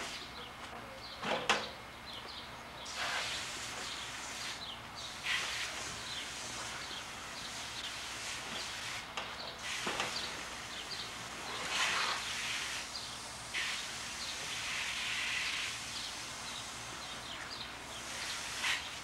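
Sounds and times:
birds chirping: 0.2s - 8.0s
hose water running into tub: 2.9s - 19.0s.

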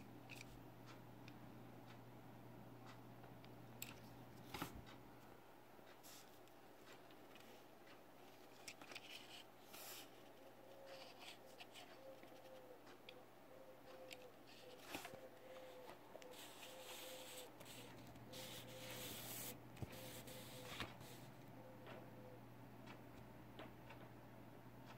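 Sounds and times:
fingers handling toy car on paper: 5.9s - 13.0s, 13.9s - 21.3s.

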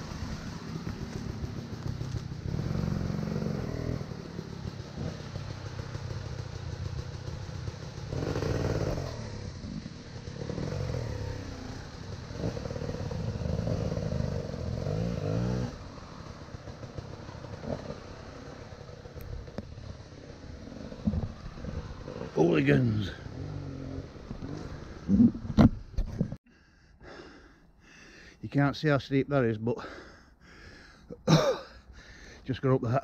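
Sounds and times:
motorbike engine revving: 0.0s - 26.4s.

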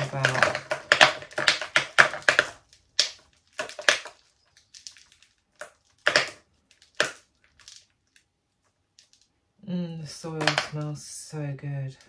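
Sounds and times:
soil crumbling into plastic bowl: 0.0s - 8.3s, 10.1s - 11.0s.

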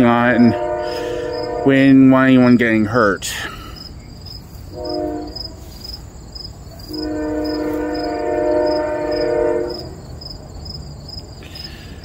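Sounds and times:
train horn blasts: 0.0s - 2.2s, 4.7s - 5.8s, 6.9s - 10.0s
crickets chirping: 0.0s - 12.0s.

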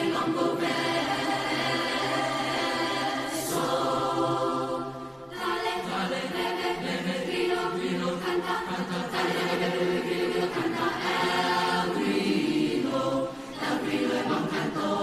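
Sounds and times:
choir singing sustained chords: 0.0s - 15.0s.

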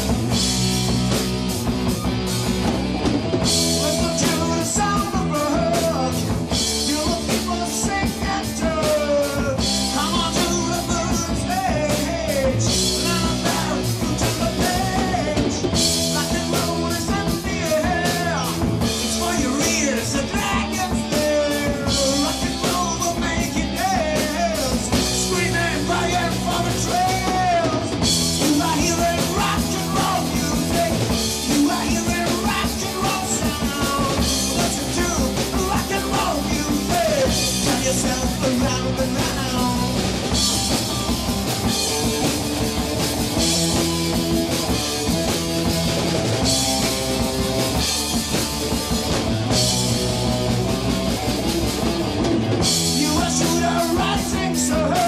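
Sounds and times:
drum kit: 0.0s - 55.0s
electric guitars: 0.0s - 55.0s
man singing into a microphone: 3.7s - 40.0s, 53.0s - 55.0s.

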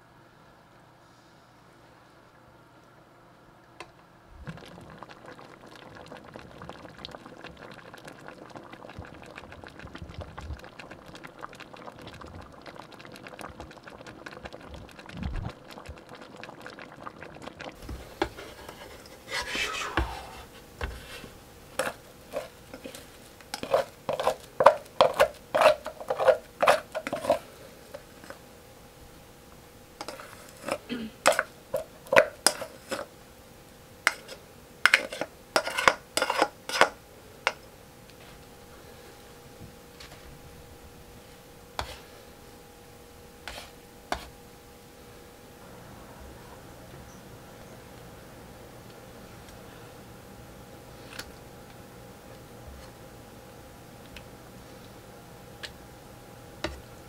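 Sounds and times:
pot simmering with bubbling hiss: 1.0s - 57.0s
plastic paddle scraping a pot: 17.8s - 27.4s.

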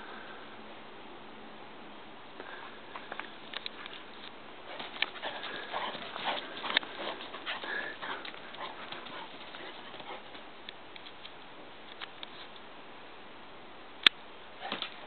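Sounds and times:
puppy paws running on snow and leaves: 3.7s - 11.4s.

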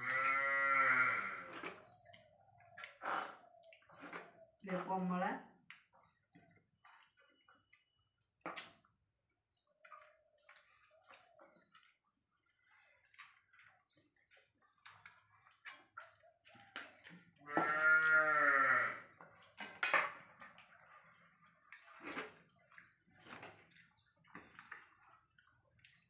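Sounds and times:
cow mooing: 0.0s - 1.5s, 17.4s - 19.0s
hands mixing food on plates: 1.5s - 18.2s, 19.0s - 26.0s
wet clicks and clinks: 1.6s - 17.4s, 19.1s - 26.0s.

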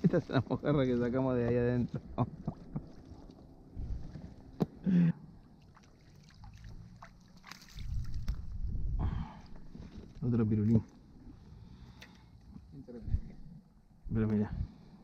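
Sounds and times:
wind rumble on microphone: 0.0s - 4.6s, 7.7s - 10.7s, 12.5s - 15.0s
water lapping on kayak hulls: 1.8s - 8.6s.

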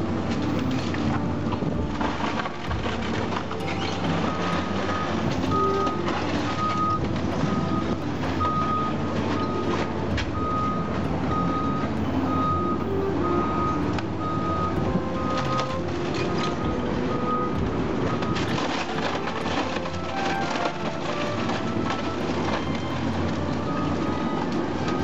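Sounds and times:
excavator diesel engine running: 0.0s - 25.0s
timber breaking and debris falling: 0.3s - 11.0s, 14.8s - 23.8s
backup alarm beeping: 3.5s - 25.0s.

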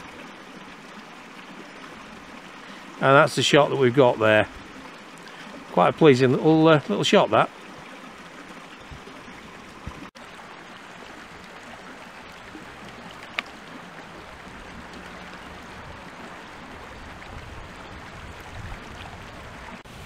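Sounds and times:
brook burbling over rocks: 0.0s - 20.0s.

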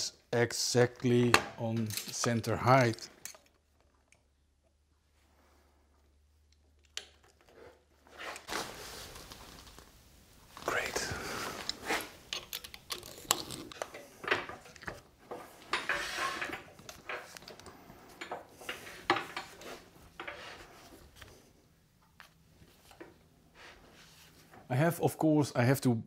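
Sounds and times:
metal clicks and clunks: 1.0s - 2.4s.

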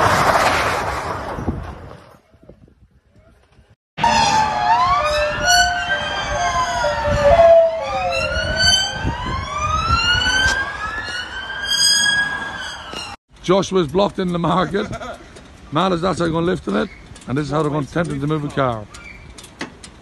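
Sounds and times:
emergency vehicle sirens wailing: 4.0s - 13.2s.

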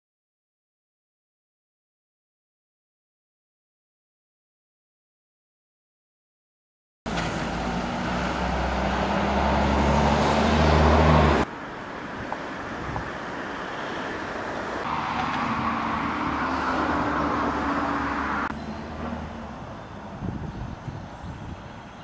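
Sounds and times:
quieter engine and traffic: 7.1s - 22.0s.

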